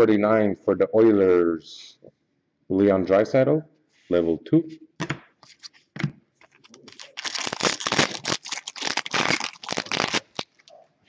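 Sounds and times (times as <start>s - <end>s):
foil wrapper crinkling: 6.4s - 10.7s.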